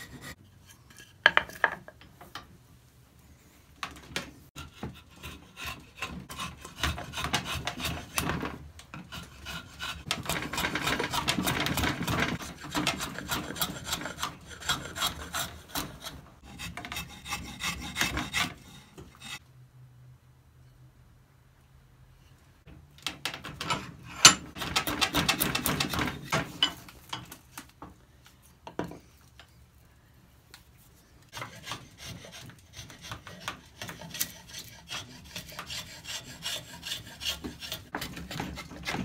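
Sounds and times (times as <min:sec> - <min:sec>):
file scraping wood: 0:00.0 - 0:01.6, 0:04.6 - 0:19.4, 0:31.3 - 0:39.0.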